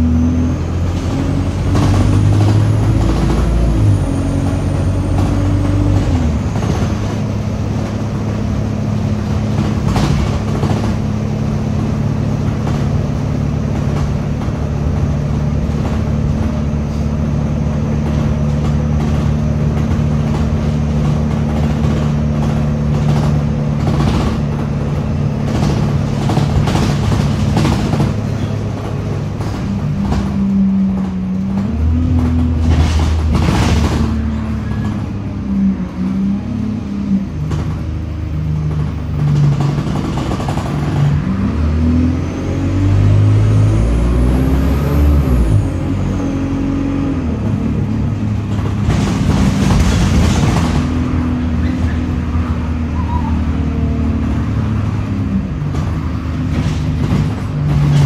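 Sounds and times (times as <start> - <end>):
bus engine droning: 0.0 - 58.0
body rattles and knocks: 9.3 - 16.6, 17.9 - 34.2.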